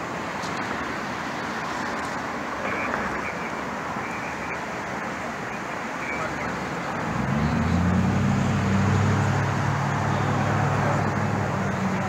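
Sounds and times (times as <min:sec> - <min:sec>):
street traffic noise: 0:00.0 - 0:12.0
vehicle engine humming: 0:00.0 - 0:12.0.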